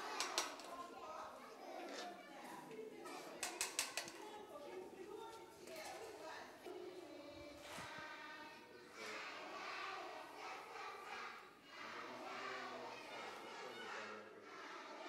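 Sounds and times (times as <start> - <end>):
group of voices singing: 6.7 - 13.5.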